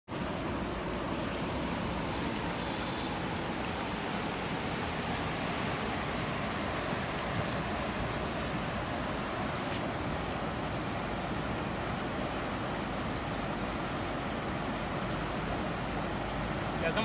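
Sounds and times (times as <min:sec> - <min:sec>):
river rushing over rapids: 0:00.1 - 0:17.0.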